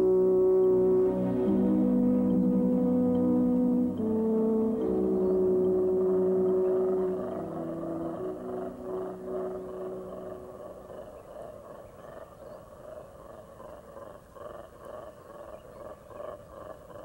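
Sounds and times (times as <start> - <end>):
sustained tones: 0.0 - 11.6
monkeys roaring calls: 0.0 - 17.0.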